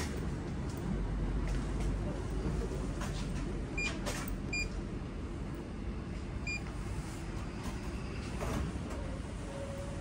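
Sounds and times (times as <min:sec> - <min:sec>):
short electronic beeps: 0:06.4 - 0:06.7.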